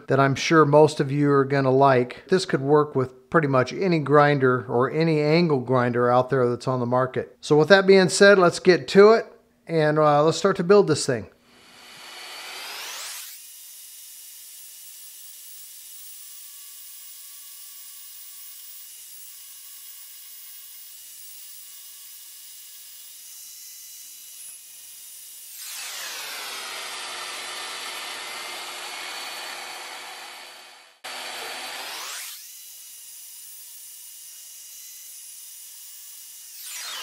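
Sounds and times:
band saw cutting steel: 11.5s - 37.0s.

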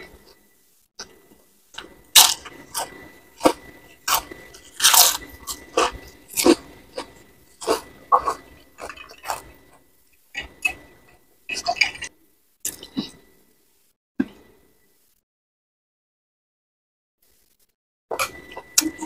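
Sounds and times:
crunching of cracker being chewed: 1.8s - 9.6s.

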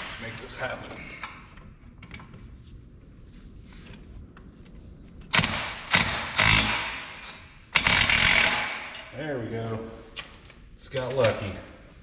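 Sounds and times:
impact wrench hammering: 5.3s - 9.1s.

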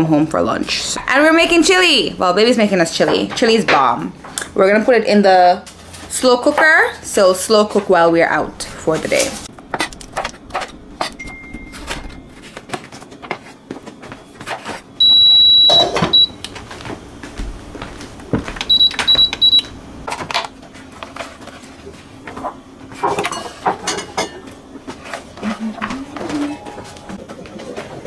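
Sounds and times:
electronic beeps: 15.0s - 16.3s, 18.7s - 19.7s.

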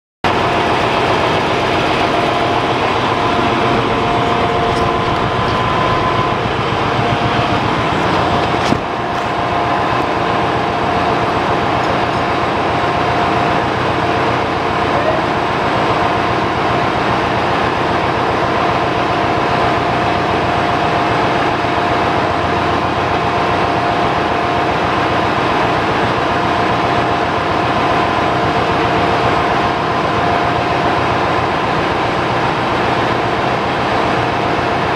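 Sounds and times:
engine-room machinery din: 0.2s - 34.9s
humming tones: 0.3s - 15.5s.

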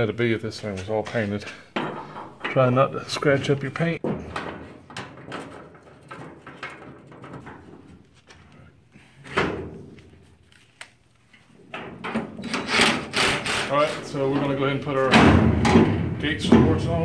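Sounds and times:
metal hardware clicks and knocks: 1.4s - 2.8s, 4.0s - 7.9s.

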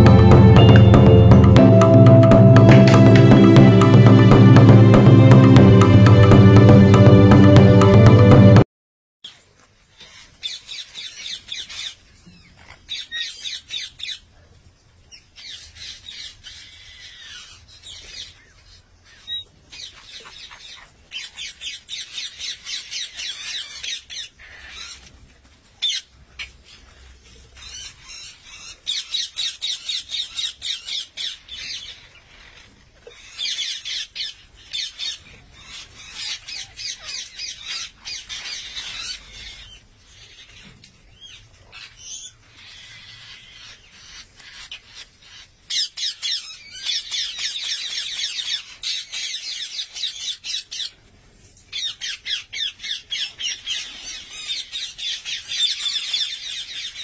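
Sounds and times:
parakeets squawking: 26.7s - 50.9s.

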